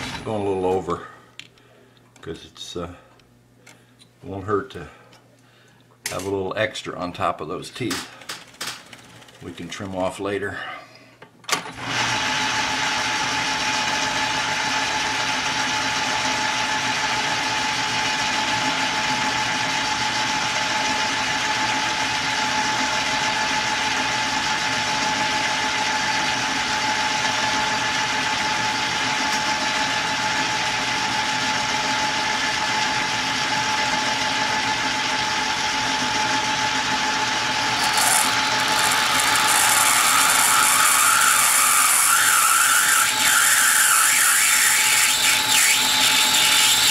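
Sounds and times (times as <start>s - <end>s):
lathe whining: 37.6s - 46.9s.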